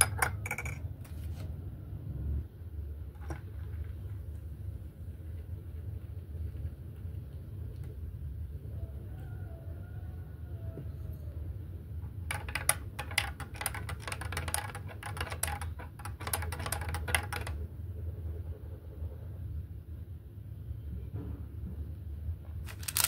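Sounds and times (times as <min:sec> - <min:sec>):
teaspoon clinking in glass mug: 0:00.0 - 0:00.8.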